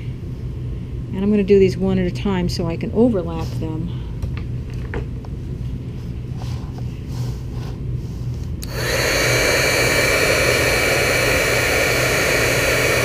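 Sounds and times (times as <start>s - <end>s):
heat gun blowing air: 8.6s - 13.0s.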